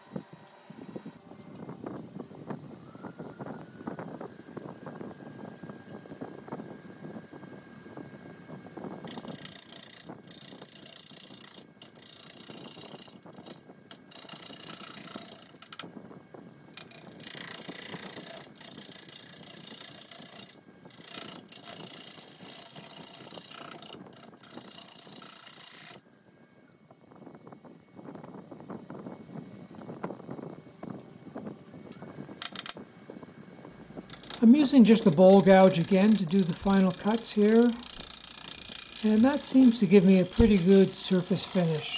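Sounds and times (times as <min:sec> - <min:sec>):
wood lathe running: 0:17.1 - 0:26.0, 0:34.1 - 0:41.9
gouge cutting wood hissing: 0:34.2 - 0:41.9.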